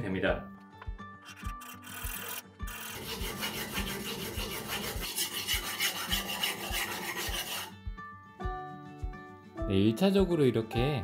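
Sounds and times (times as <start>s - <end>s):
knife scraping on sharpening stone: 1.3s - 7.7s.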